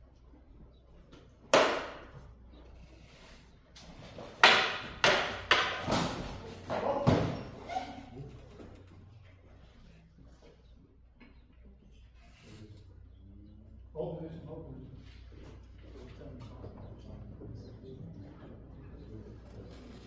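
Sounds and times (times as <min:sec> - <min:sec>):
practice swords clashing: 0:01.5 - 0:02.1, 0:04.3 - 0:08.0.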